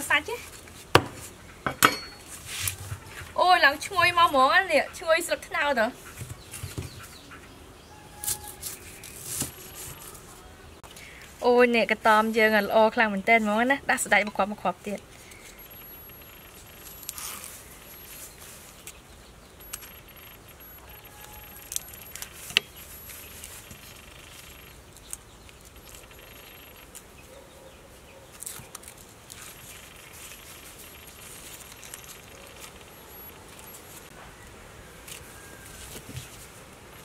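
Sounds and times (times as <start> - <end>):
leaf crinkling and rustling: 7.9 - 15.6, 16.4 - 37.0.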